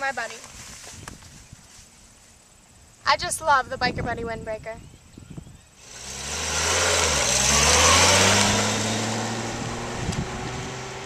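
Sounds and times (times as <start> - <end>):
motorcycle accelerating away: 5.8 - 11.0.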